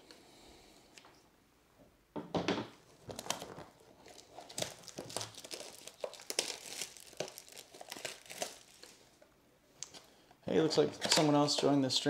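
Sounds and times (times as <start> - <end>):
plastic wrapping crinkling: 2.8 - 9.2.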